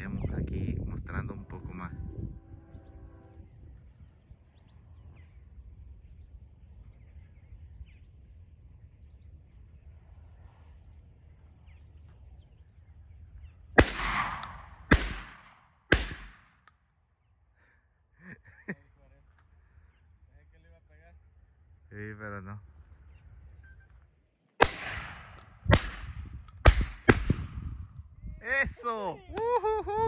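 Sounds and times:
low wind rumble: 0.0s - 30.0s
shotgun shots: 13.8s - 16.6s, 24.6s - 27.7s
faint bird chirps: 23.0s - 24.2s.

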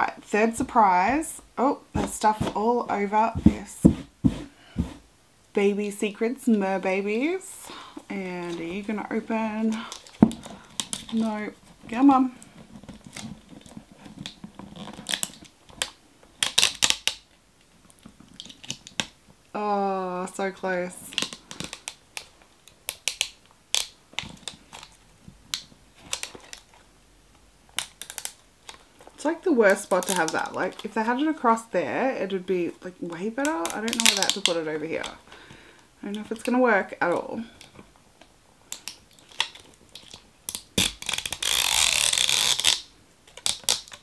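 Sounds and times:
plastic wrapping crinkling: 7.7s - 19.2s, 21.0s - 26.9s, 27.7s - 31.7s, 33.1s - 36.6s, 38.6s - 44.0s
plastic seal strip ripping: 12.9s - 17.3s, 21.1s - 26.7s, 27.8s - 28.8s, 33.4s - 34.6s, 38.7s - 44.0s.

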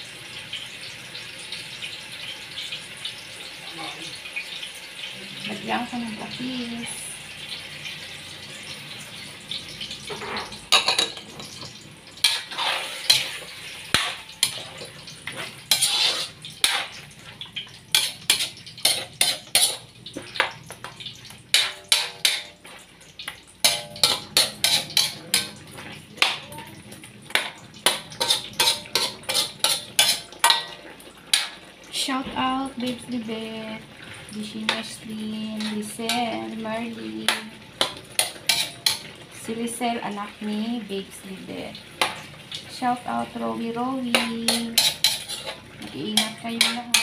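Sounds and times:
soft frying hiss: 0.0s - 47.0s
tongs scraping metal wok: 10.1s - 17.1s, 17.9s - 19.9s, 21.5s - 22.7s, 23.6s - 25.6s, 27.3s - 31.6s, 35.5s - 39.1s, 44.0s - 47.0s.

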